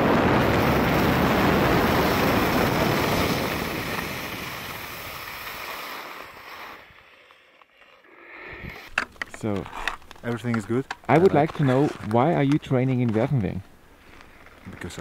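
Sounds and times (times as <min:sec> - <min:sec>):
wind on microphone: 0:00.0 - 0:05.7
skis scraping on hard snow: 0:00.0 - 0:08.0, 0:08.7 - 0:15.0.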